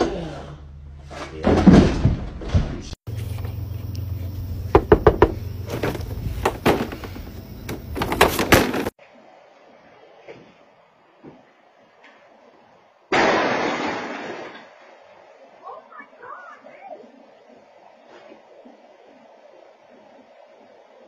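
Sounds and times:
sharp knocks: 4.7s - 7.2s
loud thump and commotion: 4.7s - 8.9s
door rattling and banging: 4.7s - 9.0s.

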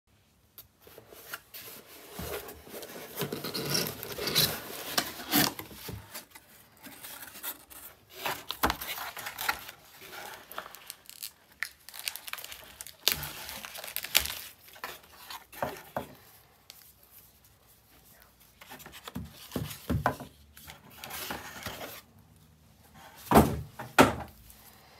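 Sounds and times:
cardboard ripping and scraping: 1.3s - 16.2s.

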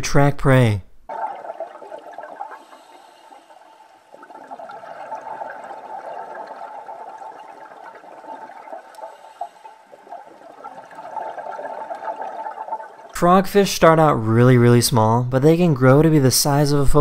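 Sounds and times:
faint crackles: 1.1s - 13.2s
underwater rushing gurgling water: 1.1s - 13.2s.

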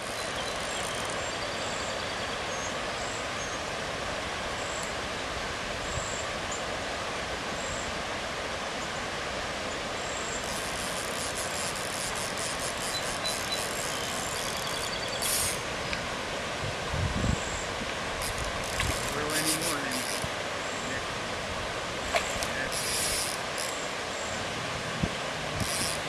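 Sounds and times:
rapid faint high clicks: 0.0s - 1.3s, 10.4s - 16.1s, 18.2s - 20.4s, 22.1s - 23.8s, 25.6s - 26.0s
creek water flowing over rocks: 0.0s - 5.8s, 6.4s - 26.0s.

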